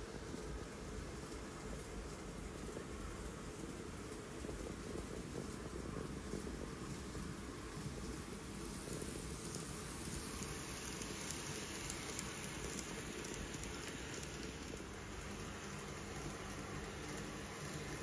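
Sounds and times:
model train whirring rattle: 0:06.6 - 0:18.0.

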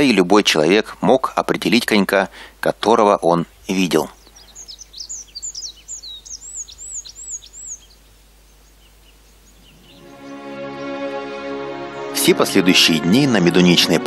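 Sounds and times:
bird singing whistled phrases: 0:04.2 - 0:08.0
soft background music: 0:09.7 - 0:14.0.

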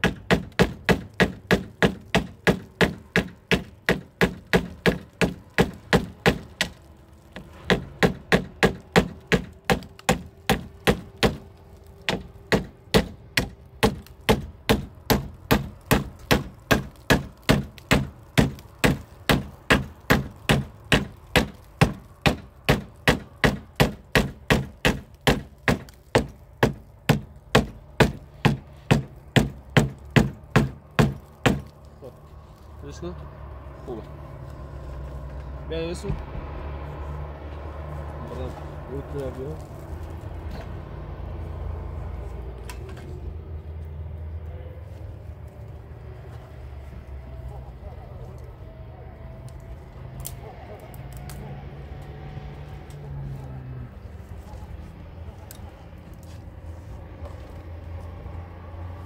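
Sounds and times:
hammer striking wood: 0:00.0 - 0:11.4, 0:12.0 - 0:31.7.

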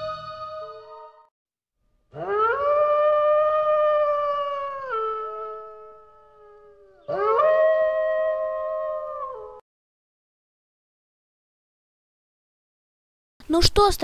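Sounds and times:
wolf howling: 0:02.1 - 0:09.6.

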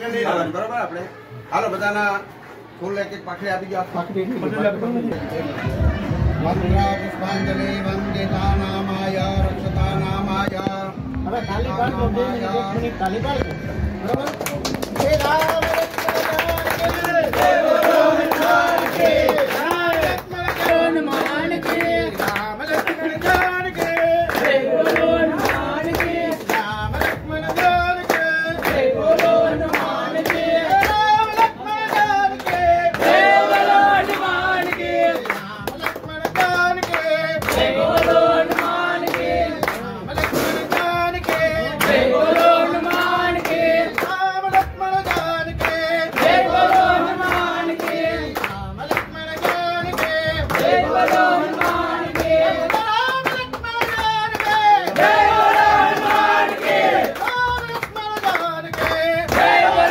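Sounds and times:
rhythmic hand-clapping: 0:12.9 - 0:59.9
group of men chanting: 0:16.6 - 0:35.7, 0:36.5 - 0:44.0, 0:45.1 - 0:48.8, 0:49.9 - 0:53.0, 0:54.1 - 0:57.6, 0:58.5 - 0:59.9.

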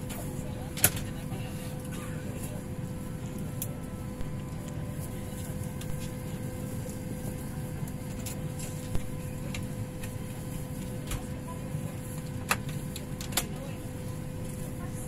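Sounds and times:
airliner cabin hum: 0:00.0 - 0:15.0.

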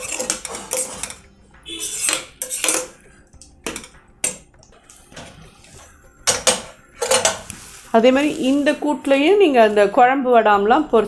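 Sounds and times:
metal ladle scraping iron pot: 0:00.0 - 0:07.5.

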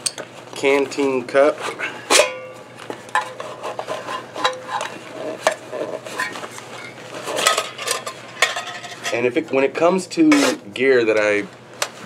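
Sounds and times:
metal cup clinks and scrapes: 0:02.1 - 0:09.2.

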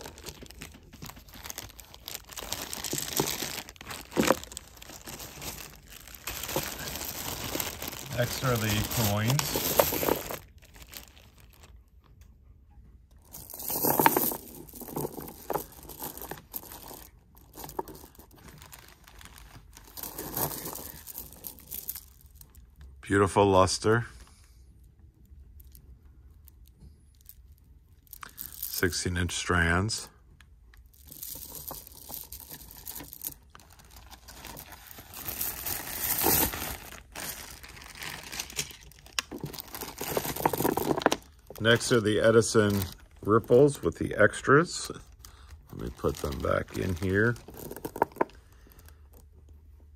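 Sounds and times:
plastic bag crinkling: 0:00.0 - 0:11.7, 0:13.2 - 0:22.7, 0:28.0 - 0:29.0, 0:30.9 - 0:49.2.

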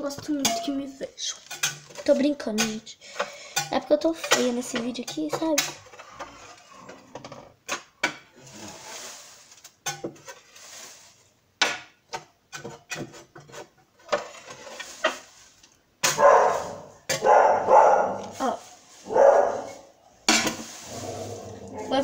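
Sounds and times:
sawdust rustling and scraping: 0:08.4 - 0:11.3, 0:13.4 - 0:22.0.

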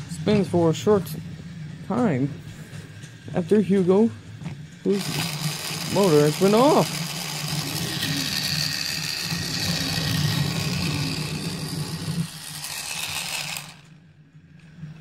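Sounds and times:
toy electric motor whirring: 0:04.9 - 0:14.0.

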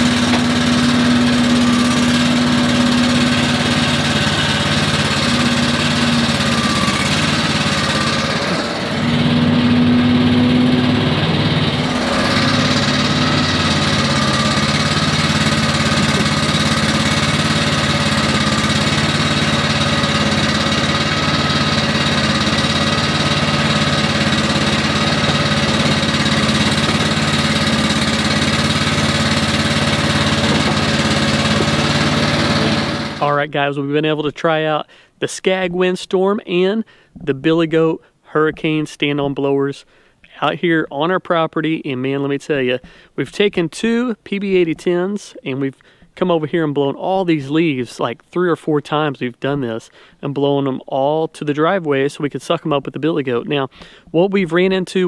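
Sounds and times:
leaf blower engine hum: 0:00.0 - 0:33.4.

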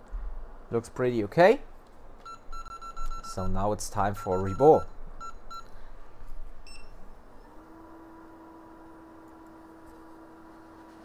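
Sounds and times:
short electronic beeps: 0:02.2 - 0:03.5, 0:04.2 - 0:05.7, 0:06.6 - 0:07.0
blower humming: 0:06.9 - 0:11.0.

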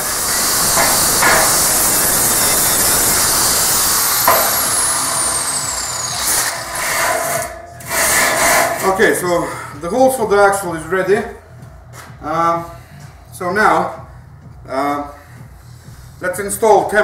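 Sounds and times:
high falling whine: 0:00.0 - 0:09.3
angle grinder sanding steel: 0:00.0 - 0:09.6.

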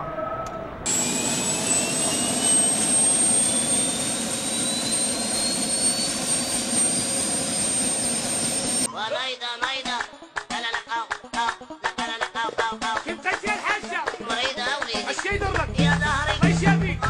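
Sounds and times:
high turbine whine: 0:00.0 - 0:08.9
steady high whistle: 0:00.0 - 0:08.9
helicopter engine and rotor noise: 0:00.8 - 0:08.9.

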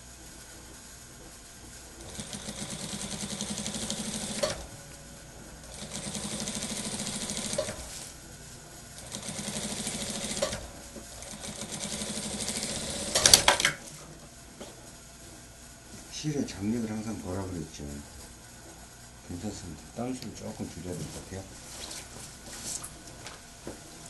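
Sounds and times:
sewing machine stitching: 0:02.0 - 0:04.7, 0:05.7 - 0:08.0, 0:09.0 - 0:13.8
sewing machine stop click: 0:13.0 - 0:13.8.

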